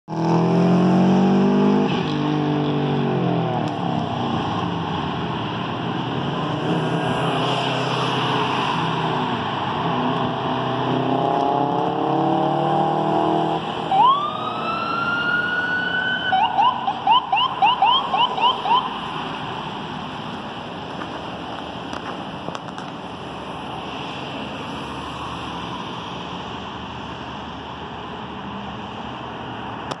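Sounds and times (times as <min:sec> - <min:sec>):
passing traffic: 0:00.1 - 0:30.0
siren wailing and yelping: 0:13.8 - 0:19.1.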